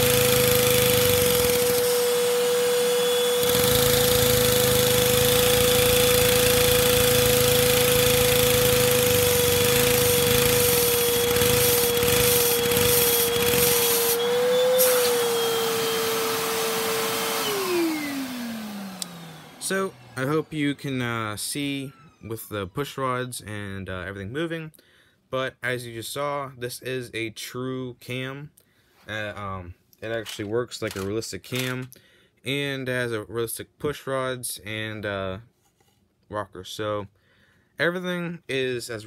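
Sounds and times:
vacuum cleaner motor whining: 0.0 - 22.7.

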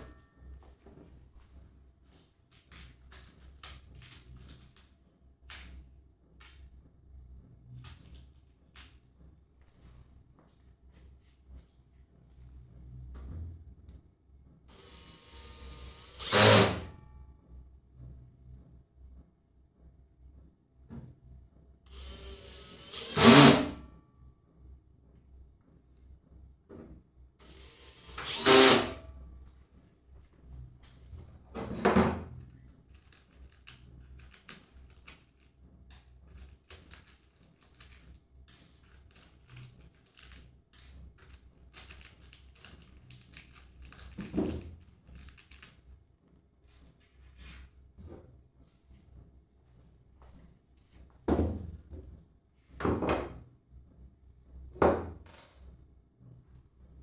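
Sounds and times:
small screws clicking and rattling: 32.5 - 45.9.

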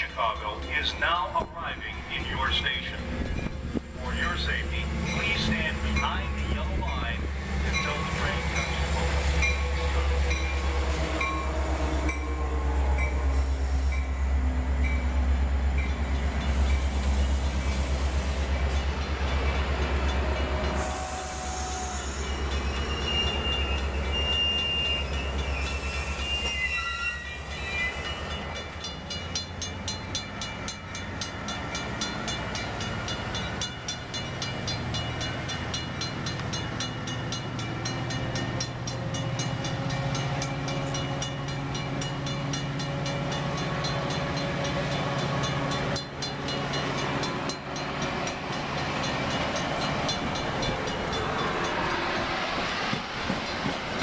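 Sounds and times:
diesel locomotive drone: 0.0 - 54.0
thin high squeals: 22.1 - 28.2
train wheels clicking over rail joints: 28.0 - 54.0.

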